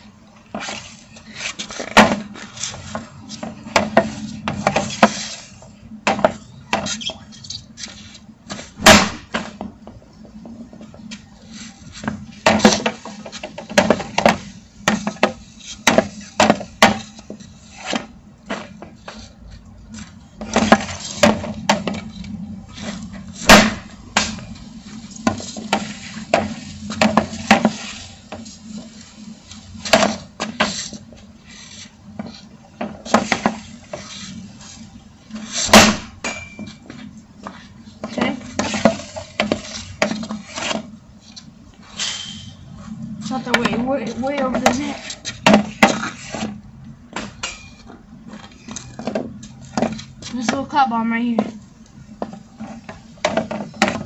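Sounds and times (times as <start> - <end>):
stick blade scraping pavement: 0.1 - 54.0
hockey stick hitting pucks: 0.5 - 5.4, 6.1 - 7.1, 8.5 - 9.7, 12.0 - 19.2, 20.4 - 22.1, 22.8 - 24.5, 25.2 - 28.5, 29.8 - 30.9, 32.2 - 34.1, 35.4 - 36.9, 38.0 - 40.9, 43.3 - 47.8, 52.2 - 54.0.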